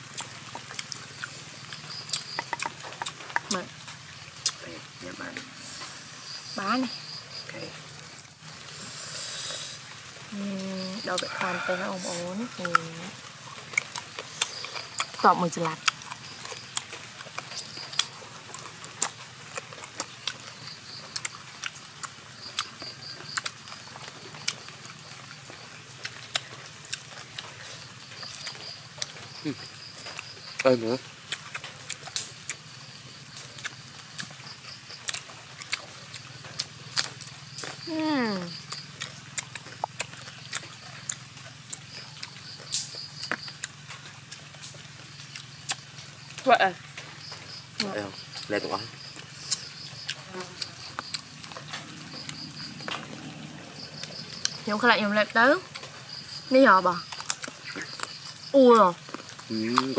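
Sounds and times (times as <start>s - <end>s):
crunchy chewing: 0.0s - 59.9s.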